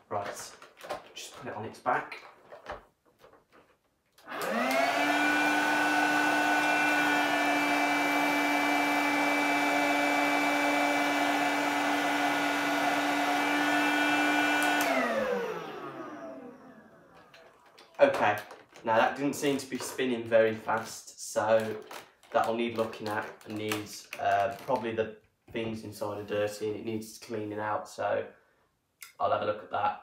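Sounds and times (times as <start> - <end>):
stick vacuum whirring: 4.2 - 20.0.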